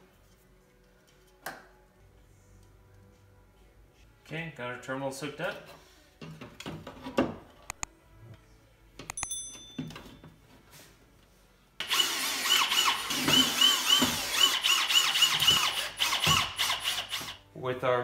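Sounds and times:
cordless drill driving screws: 0:11.8 - 0:17.4.

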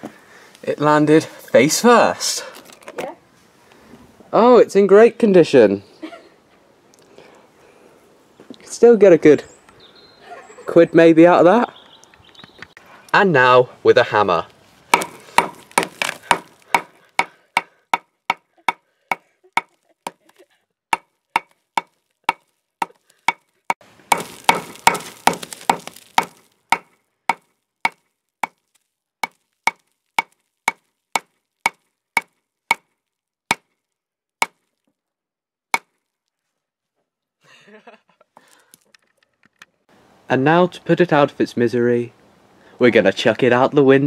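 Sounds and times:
hammer striking glass screen: 0:15.0 - 0:17.0, 0:24.1 - 0:28.6, 0:29.2 - 0:32.9.

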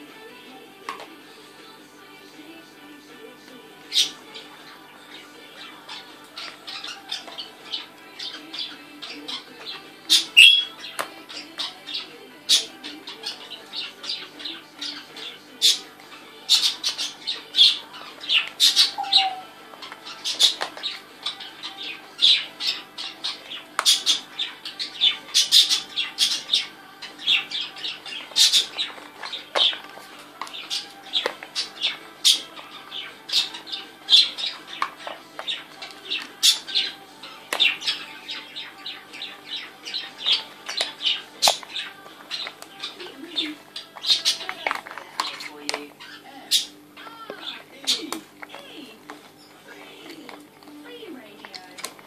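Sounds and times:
parrot squawks and clicks: 0:18.6 - 0:20.8.

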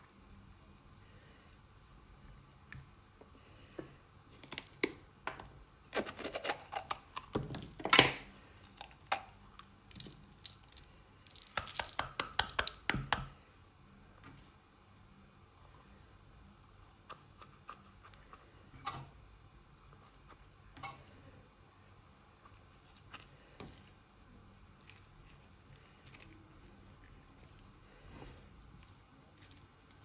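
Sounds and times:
knife cutting pepper: 0:05.9 - 0:07.3.

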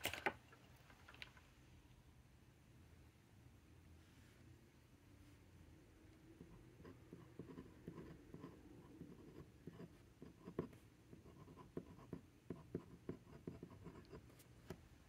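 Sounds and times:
pen nib scratching on paper: 0:06.4 - 0:14.4.

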